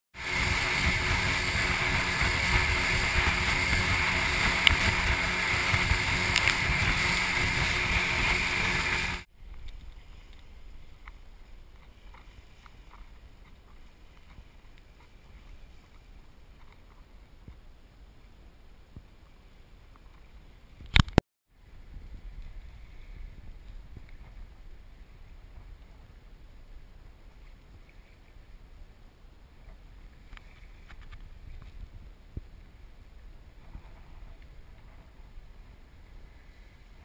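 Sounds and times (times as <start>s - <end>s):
wind: 0.1s - 37.0s
outboard motors running: 0.2s - 9.3s
water rushing: 0.2s - 9.3s
water lapping around boat: 0.2s - 17.6s.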